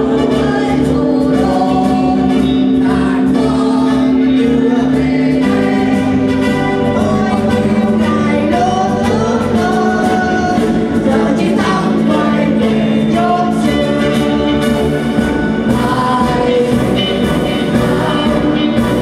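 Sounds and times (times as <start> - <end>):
mixed choir singing: 0.0 - 19.0.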